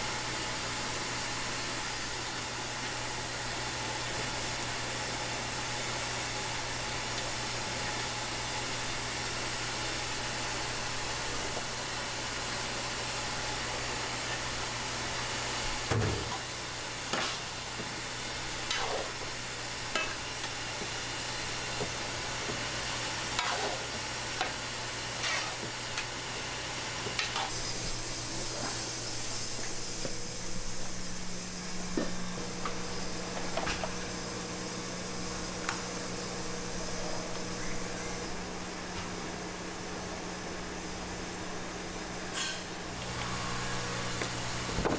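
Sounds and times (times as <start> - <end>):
food sizzling on a griddle: 1.1 - 34.4
utensils scraping a metal plate: 23.3 - 23.9, 25.2 - 25.7
low hum: 27.6 - 38.6.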